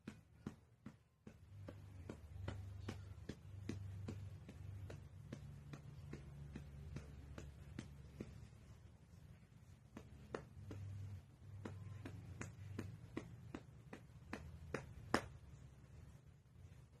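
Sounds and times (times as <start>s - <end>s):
hand patting dog: 0.0s - 15.6s.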